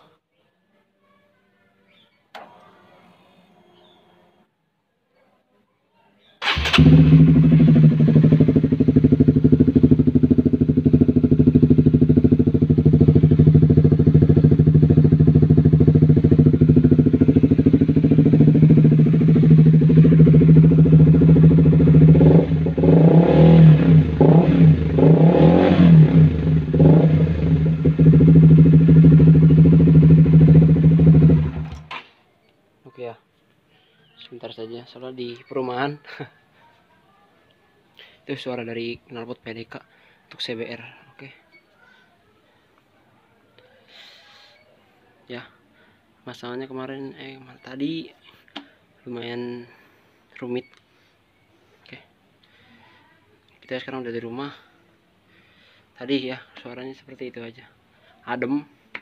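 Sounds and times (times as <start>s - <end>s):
motorcycle engine idling and revving: 6.4s - 31.9s.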